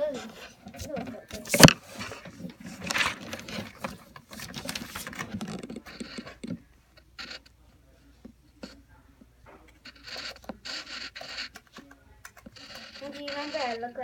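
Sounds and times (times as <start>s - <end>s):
pencil scratching on paper: 0.0s - 6.6s, 9.8s - 14.0s.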